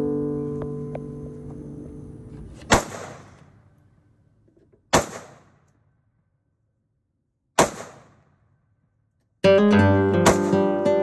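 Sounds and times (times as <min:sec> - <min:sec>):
rifle shots echoing: 0:02.7 - 0:03.6, 0:04.9 - 0:05.7, 0:07.6 - 0:08.4.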